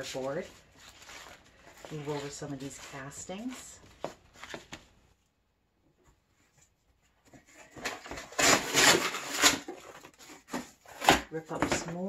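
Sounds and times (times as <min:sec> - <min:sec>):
soft rustles: 0:00.0 - 0:05.3
cardboard ripping: 0:07.7 - 0:11.3.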